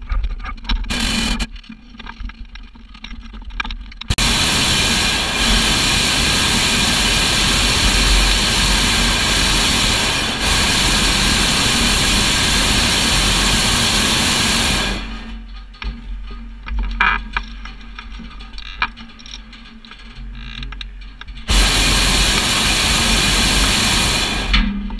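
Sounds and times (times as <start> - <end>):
propane burner blast: 4.1 - 15.4, 21.5 - 24.9.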